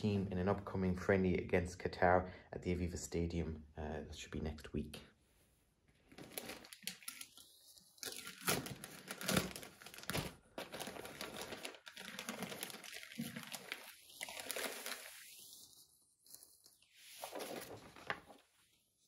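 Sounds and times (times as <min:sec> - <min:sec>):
plastic bag crinkling: 0:06.1 - 0:18.4
tape tearing: 0:08.0 - 0:13.7.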